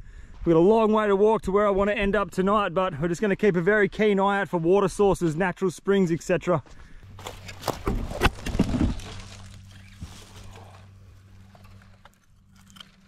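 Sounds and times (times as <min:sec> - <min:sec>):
footsteps on dry ground: 0:06.1 - 0:12.1
faint low hum: 0:06.7 - 0:13.0.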